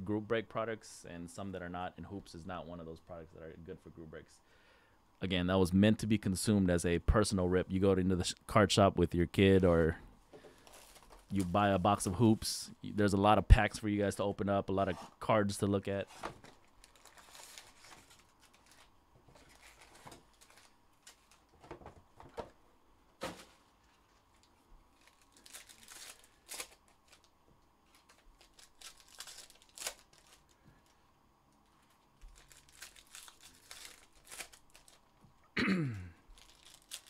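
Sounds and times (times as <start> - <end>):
card pack wrappers tearing: 16.1 - 21.6, 23.2 - 31.0, 31.8 - 35.1, 36.3 - 37.0.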